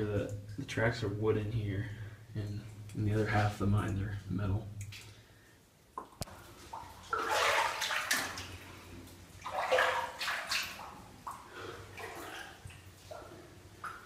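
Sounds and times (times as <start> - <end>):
footsteps sloshing through water: 6.2 - 14.0.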